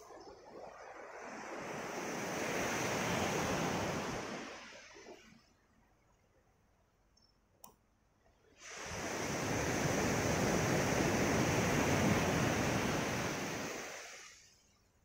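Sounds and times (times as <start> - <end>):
wave washing up gravel beach: 0.0 - 5.3, 8.6 - 14.5.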